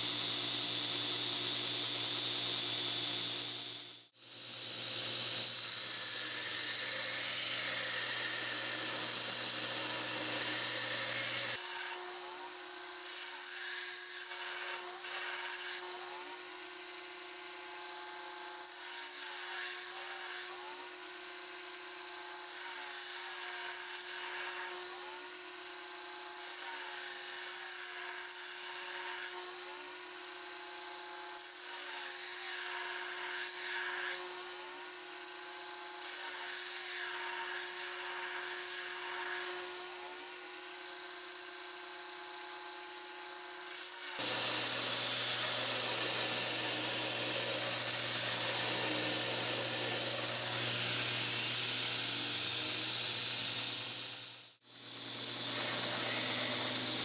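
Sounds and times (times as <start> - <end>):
belt grinder humming: 0.0 - 16.5, 43.7 - 57.0
knife blade grinding rasp: 3.0 - 16.6, 43.7 - 57.0.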